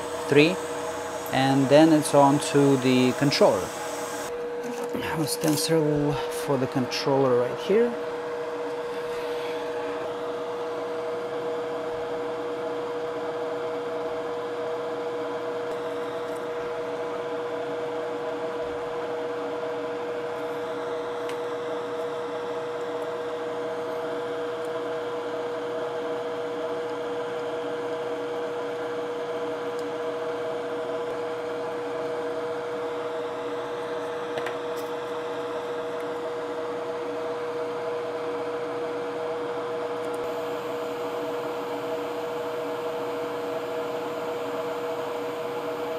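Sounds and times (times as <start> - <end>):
electric fan humming: 0.0 - 11.8, 27.4 - 45.9.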